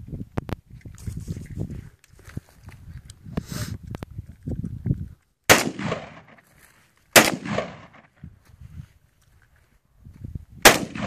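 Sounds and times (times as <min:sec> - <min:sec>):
rifle shots echoing: 0:05.5 - 0:06.4, 0:07.1 - 0:08.2, 0:10.6 - 0:11.0.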